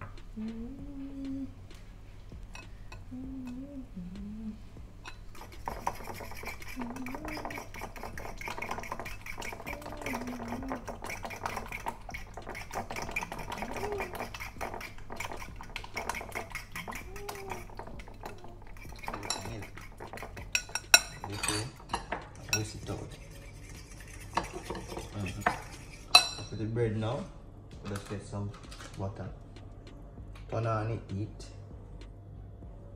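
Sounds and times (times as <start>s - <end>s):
utensil beating eggs in bowl: 5.0s - 26.7s.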